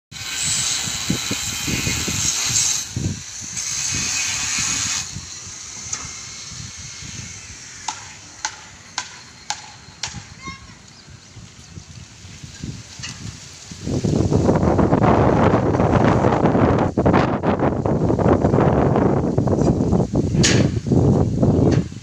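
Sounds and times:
wind rumbling on microphone: 0.1s - 22.0s
steady hiss: 0.2s - 22.0s
sharp metallic knocks: 7.8s - 10.6s.

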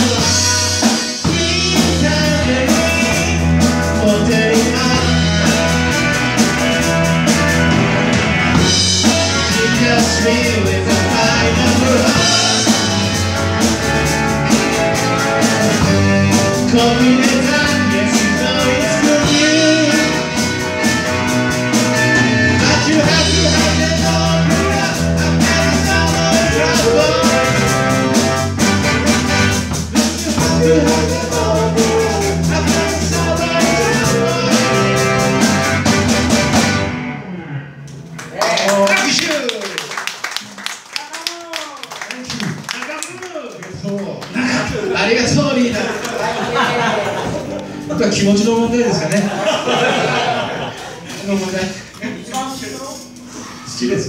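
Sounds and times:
person singing: 0.0s - 5.9s, 9.0s - 13.3s, 15.0s - 20.6s, 22.5s - 28.4s, 30.2s - 35.7s
bass guitar: 0.0s - 39.2s, 44.4s - 54.0s
electric guitars: 0.0s - 39.2s, 44.4s - 50.9s
keyboards: 0.0s - 39.5s
drum kit: 0.0s - 40.4s.

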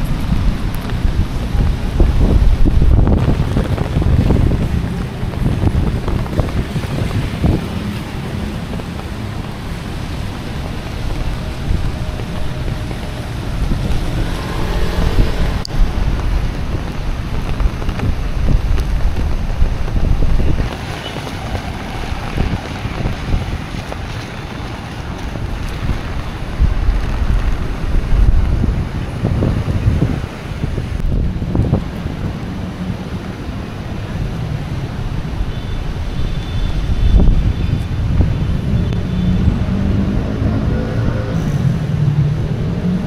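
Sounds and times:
rain on wet pavement: 0.0s - 43.0s
wind buffeting microphone: 0.0s - 43.0s.

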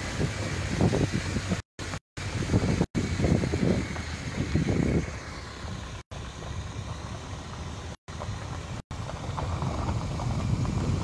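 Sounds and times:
wind buffeting a microphone: 0.0s - 1.6s, 2.2s - 5.2s, 8.9s - 11.0s.

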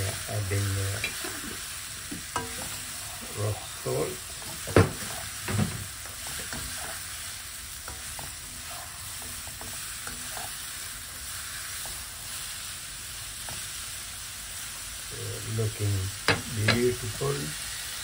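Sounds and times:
spatula scraping a pan: 0.0s - 12.5s
mushrooms sizzling in oil: 0.0s - 18.0s
spatula tapping a pan: 2.1s - 2.8s.

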